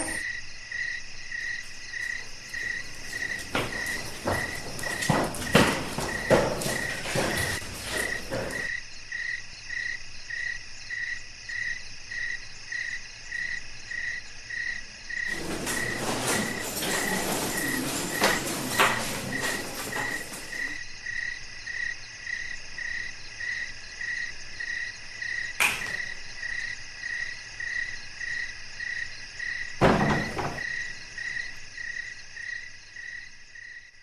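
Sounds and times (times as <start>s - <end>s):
footsteps: 0.0s - 0.2s, 1.6s - 8.8s, 15.3s - 20.8s
cricket chirping: 0.0s - 34.0s
rustling: 2.2s - 8.7s, 15.3s - 20.8s.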